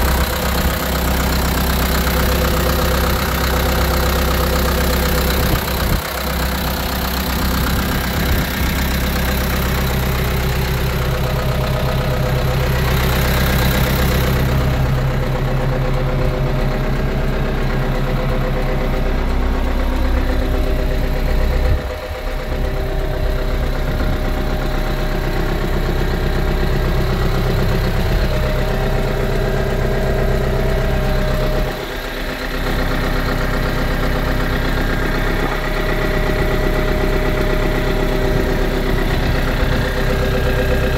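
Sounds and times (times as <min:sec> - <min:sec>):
tractor diesel engine idling: 0:00.0 - 0:40.9.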